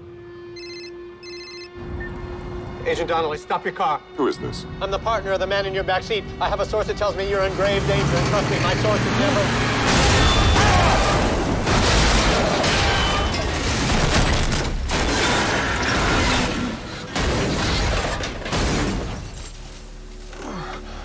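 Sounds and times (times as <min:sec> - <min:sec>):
crunching metal: 0:08.3 - 0:20.9
glass breaking: 0:09.8 - 0:16.6.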